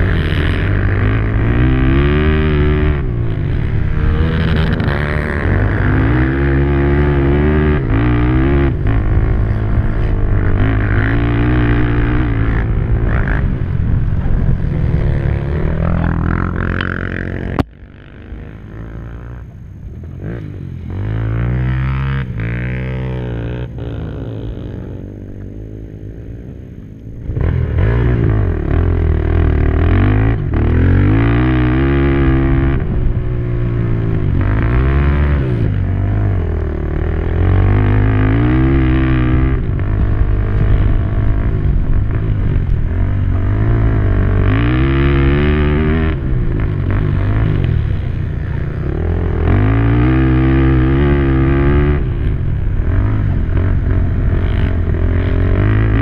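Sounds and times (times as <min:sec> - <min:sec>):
quad engine revving: 0:00.0 - 0:26.3, 0:27.1 - 0:56.0.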